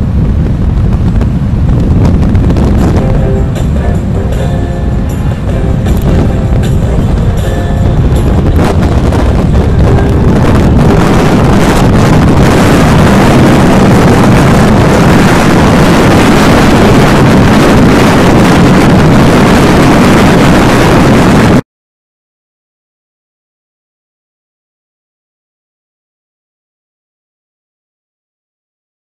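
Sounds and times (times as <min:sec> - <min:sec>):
wind rushing over microphone: 0:00.0 - 0:21.6
motorcycle engine: 0:01.1 - 0:18.2.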